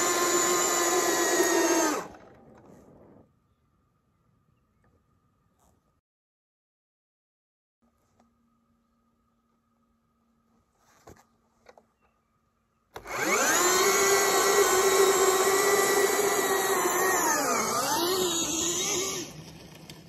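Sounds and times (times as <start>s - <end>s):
electric motor whining: 0.0s - 2.3s, 13.0s - 20.0s.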